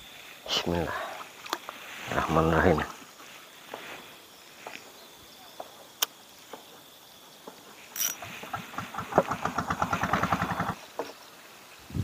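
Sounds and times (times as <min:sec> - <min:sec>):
fishing reel clicking: 0:08.0 - 0:08.3
fishing reel snap: 0:08.0 - 0:08.3.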